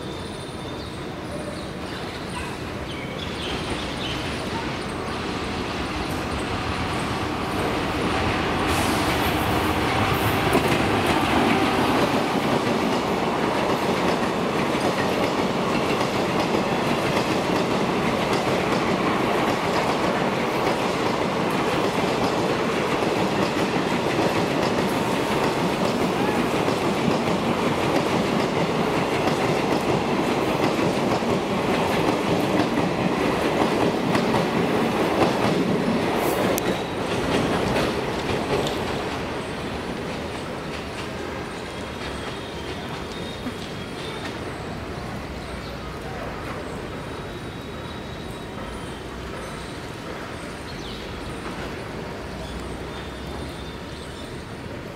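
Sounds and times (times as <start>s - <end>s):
train wheels running over rails: 3.4s - 54.1s.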